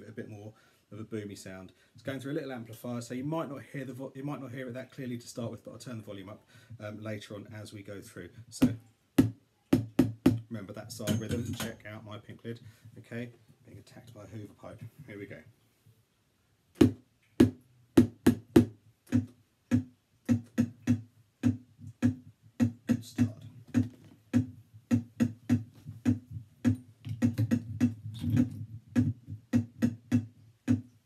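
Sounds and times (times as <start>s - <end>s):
microphone knocking on plastic lid: 16.8s - 30.9s.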